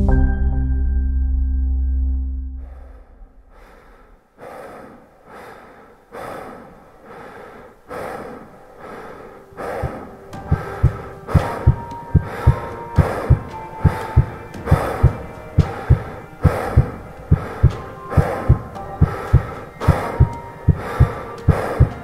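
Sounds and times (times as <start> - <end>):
bass-heavy music: 0.0 - 3.1
rhythmic breathing: 2.6 - 22.0
low heartbeat thumps: 9.6 - 22.0.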